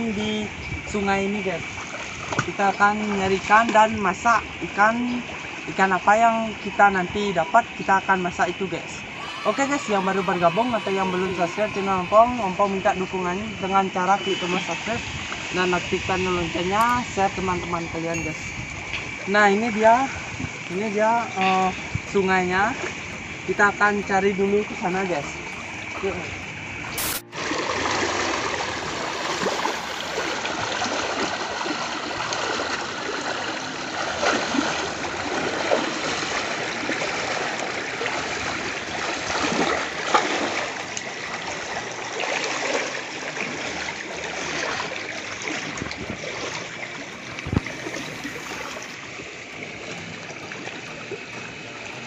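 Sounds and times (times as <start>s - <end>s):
water rushing down a channel: 7.3s - 15.9s, 21.1s - 52.0s
splashing in water: 26.9s - 52.0s.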